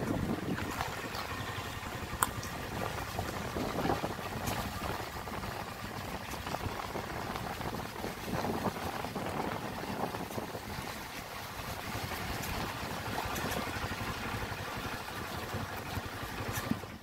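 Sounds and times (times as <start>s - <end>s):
motorcycle engine: 0.0s - 6.8s
wind on microphone: 0.0s - 17.0s.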